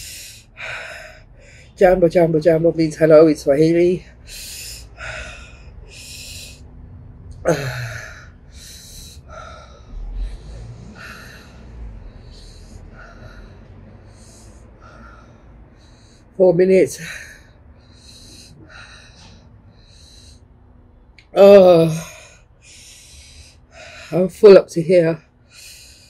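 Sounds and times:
woman breathing hard: 0.0 - 1.8, 4.0 - 16.4, 17.0 - 21.0, 21.6 - 24.2, 25.2 - 26.0
woman groaning: 7.4 - 8.3, 21.4 - 22.2.

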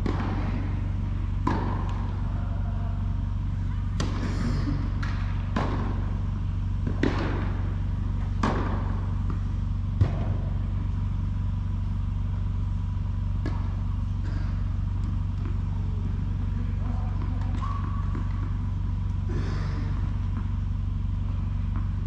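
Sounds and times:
steady low hum: 0.0 - 22.0
tennis ball being hit: 3.9 - 11.1.

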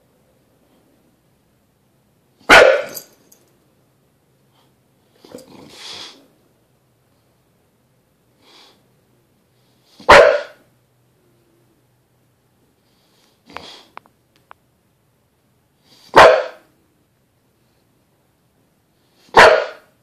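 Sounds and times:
dog barking: 2.4 - 3.1, 10.0 - 10.7, 16.1 - 16.7, 19.2 - 20.0
dog breathy huff: 5.5 - 6.3, 8.4 - 8.8, 12.8 - 14.0.

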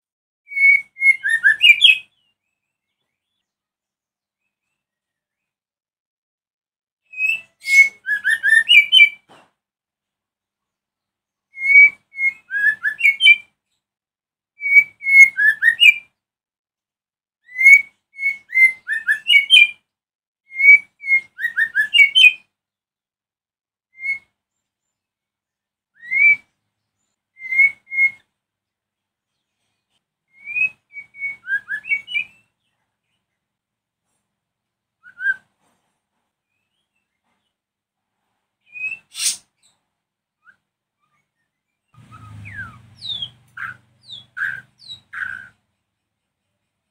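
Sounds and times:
bird singing whistled trills: 0.5 - 3.4, 7.1 - 9.2, 11.5 - 13.5, 14.6 - 16.1, 17.5 - 19.8, 20.5 - 22.5, 23.9 - 24.4, 25.9 - 26.6, 27.3 - 28.3, 30.3 - 32.6, 35.0 - 35.5, 38.7 - 39.7, 40.4 - 45.6.

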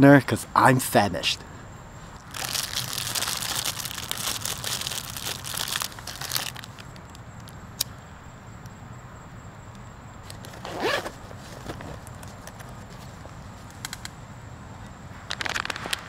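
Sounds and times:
plastic bag crinkling: 2.2 - 7.1.

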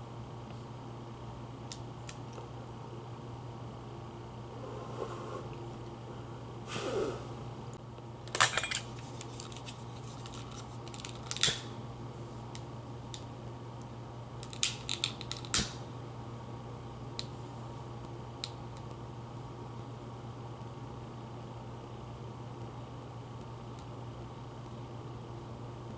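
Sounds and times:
low hum: 0.0 - 7.8
breathy mouth sound: 4.5 - 7.5.

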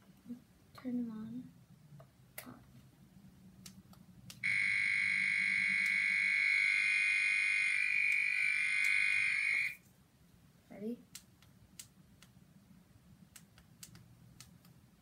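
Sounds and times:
loud steady electronic tone: 4.4 - 9.8.

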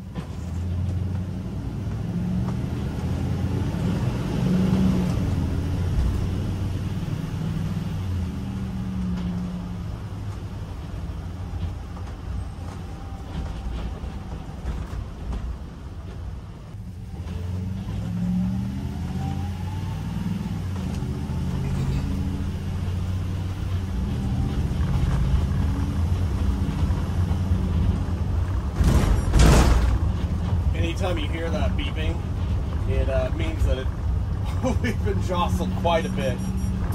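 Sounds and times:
engine running and revving: 0.0 - 15.4, 16.8 - 36.9
road noise: 0.0 - 36.9
loud jolt: 28.7 - 30.2.

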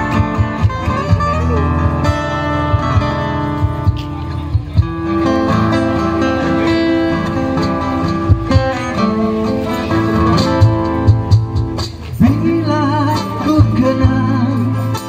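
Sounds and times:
low drum thumps: 0.0 - 6.0, 7.2 - 9.2, 10.0 - 14.4
acoustic guitars strumming: 0.0 - 15.0
man singing with vibrato: 12.1 - 15.0.

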